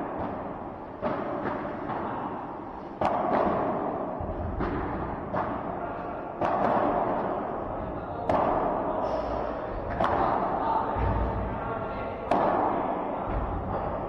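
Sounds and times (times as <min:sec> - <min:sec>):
padel ball hit with rackets: 0:00.1 - 0:05.7, 0:06.3 - 0:07.5, 0:08.2 - 0:08.8, 0:09.9 - 0:11.2, 0:12.3 - 0:13.9.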